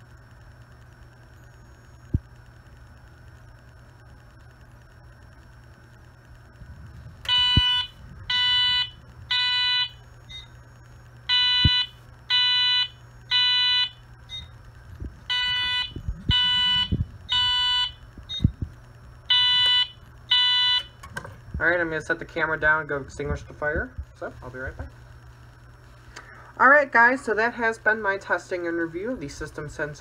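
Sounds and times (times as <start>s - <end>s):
fire alarm high beeps: 7.3s - 10.6s, 11.3s - 14.5s, 15.3s - 18.5s, 19.3s - 21.0s.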